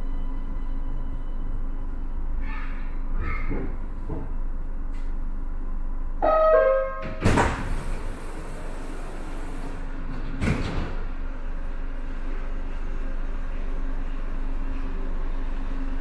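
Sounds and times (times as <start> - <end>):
sliding doors rushing and hissing: 7.1 - 11.5.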